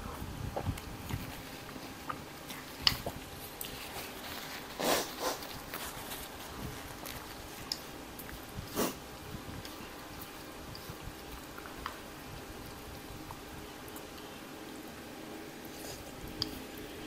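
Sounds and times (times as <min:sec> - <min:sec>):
person sniffing: 0:04.8 - 0:05.4, 0:08.7 - 0:09.0.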